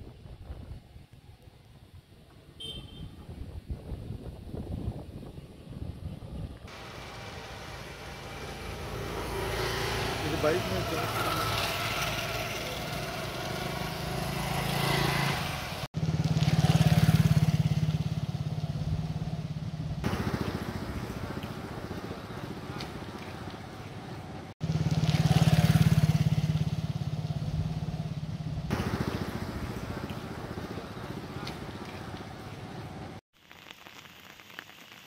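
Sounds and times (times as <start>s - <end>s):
motorcycle engine running: 6.7s - 32.7s.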